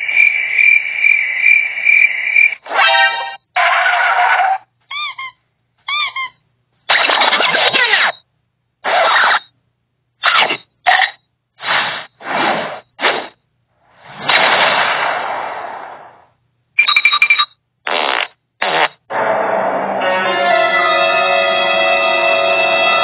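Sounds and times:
music: 19.1s - 23.0s.

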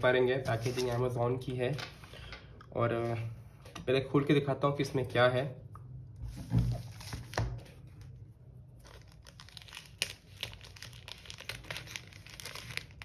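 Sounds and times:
plastic bag crinkling: 8.8s - 13.0s.

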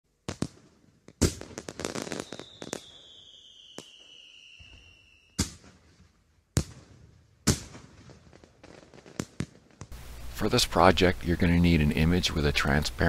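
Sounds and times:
firework sharp bangs: 0.2s - 10.0s
fireworks crackling: 0.2s - 13.0s
firework whistle falling in pitch: 2.1s - 5.5s.

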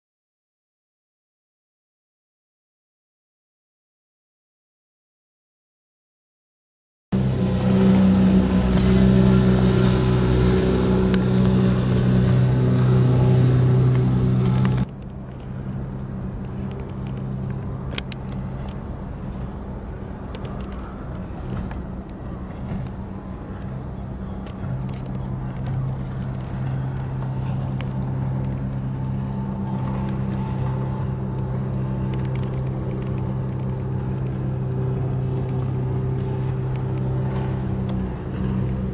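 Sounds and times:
outboard motor engine drone: 7.2s - 38.9s.

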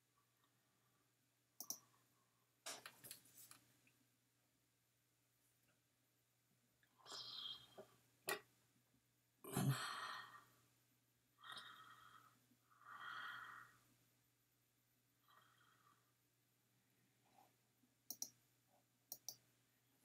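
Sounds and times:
person breathing and sighing: 9.5s - 10.6s.

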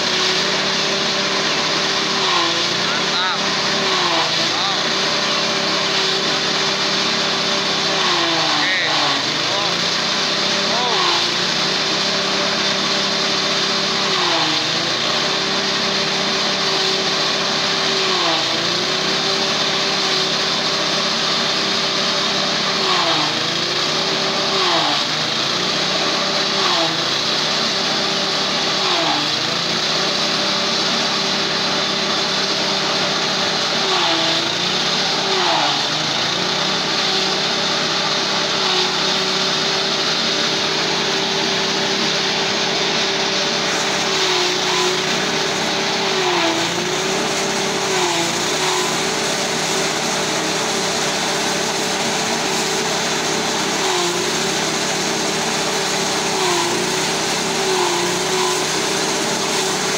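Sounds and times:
forage chopper engine running: 0.0s - 59.9s
chopping hiss of corn stalks: 43.4s - 59.9s.

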